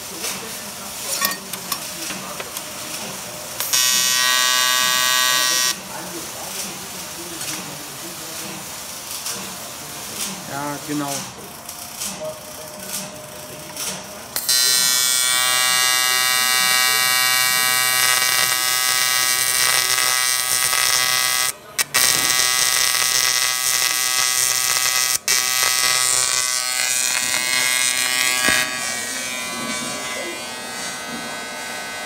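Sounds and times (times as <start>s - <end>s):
welding arc buzzing: 0.9s - 5.8s, 14.3s - 32.0s.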